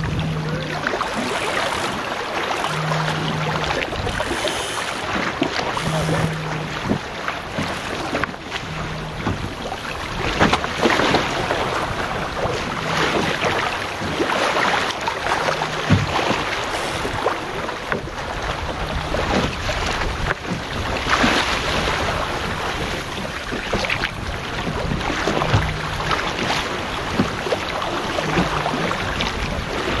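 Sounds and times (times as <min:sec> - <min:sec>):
water splashing along boat hull: 0:00.0 - 0:30.0
wind on microphone: 0:00.0 - 0:30.0.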